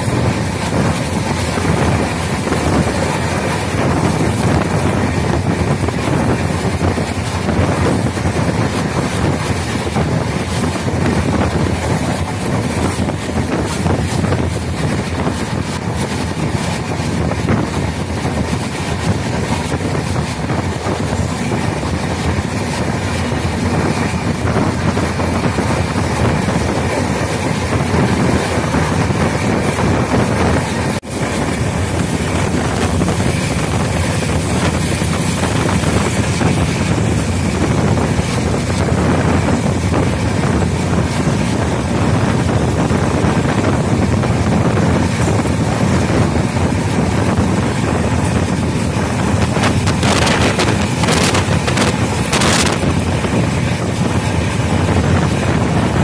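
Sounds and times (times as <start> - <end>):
train wheels rushing on rails: 0.0 - 56.0
wind buffeting microphone: 0.0 - 56.0.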